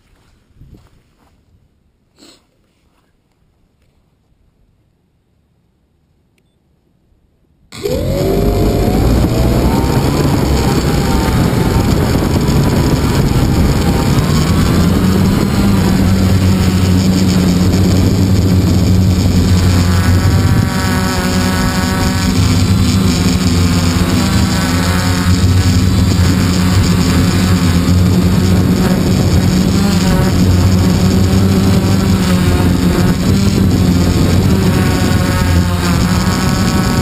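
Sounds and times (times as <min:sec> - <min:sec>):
model airplane motor: 0:07.7 - 0:37.0
rushing air noise: 0:07.8 - 0:37.0.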